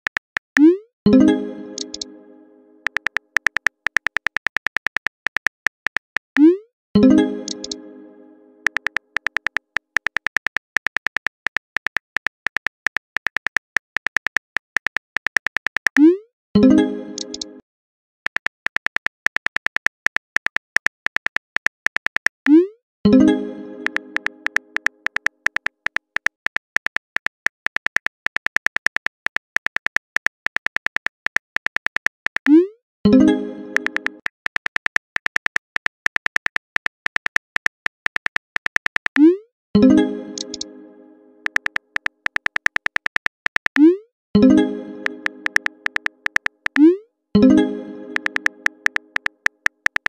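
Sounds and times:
phone keyboard typing clicks: 1.8 - 2.1, 2.8 - 6.6, 7.4 - 7.8, 8.6 - 16.1, 17.2 - 17.5, 18.3 - 22.5, 23.8 - 32.6, 33.7 - 39.4, 40.4 - 40.7, 41.4 - 44.0, 45.0 - 47.0, 48.1 - 50.0
message chime: 47.4 - 49.1.

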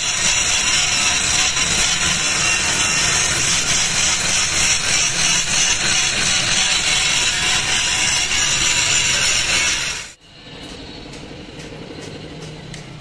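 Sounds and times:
angle grinder cutting steel: 0.0 - 10.2.

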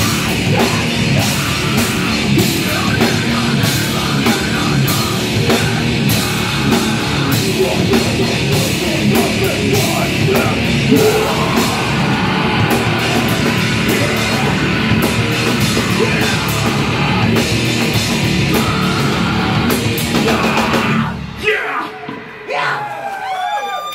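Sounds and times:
electric guitar: 0.0 - 22.5
bass guitar: 0.0 - 23.6
drum kit with crashing cymbals: 0.0 - 23.6
vocalist shouting: 9.2 - 14.7, 20.2 - 23.9.

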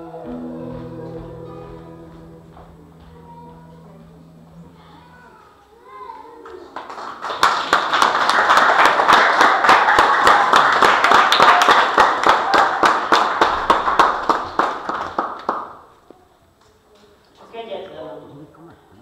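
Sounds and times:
audience applauding: 6.4 - 15.9.

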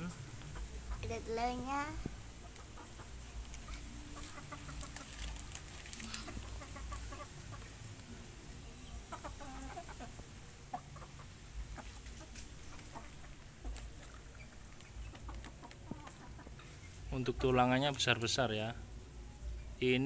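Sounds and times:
chickens clucking softly: 2.4 - 5.2, 6.1 - 7.8, 8.7 - 17.0.

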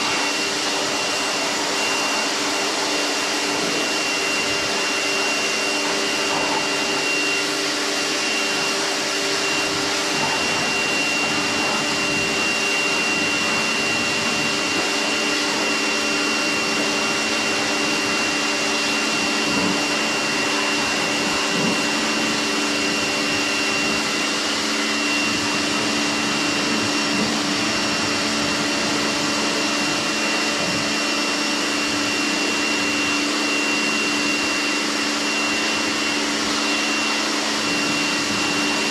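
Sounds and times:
water jet hissing: 0.0 - 30.9
pressure washer motor whine: 0.0 - 38.9.

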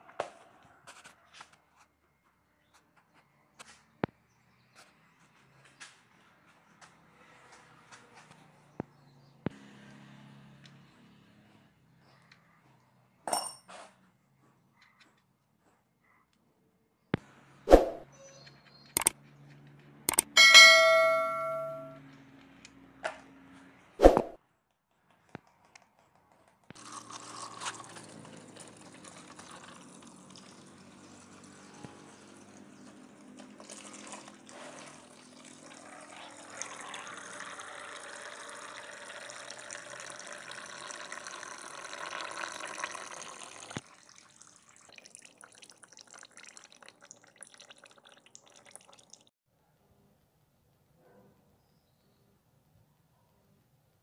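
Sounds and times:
oil dripping: 26.7 - 49.3
oil pouring in a stream: 26.8 - 49.3.

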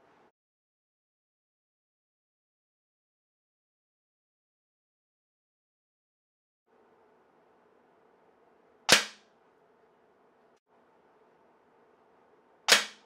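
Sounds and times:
faint steady hum: 0.0 - 0.3, 6.7 - 13.0
air pistol shot: 8.9 - 9.2, 12.7 - 13.0.

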